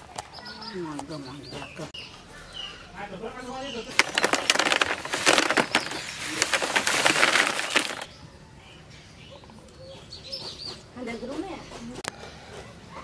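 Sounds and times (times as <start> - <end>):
dried fish crackling and crunching: 3.9 - 8.1.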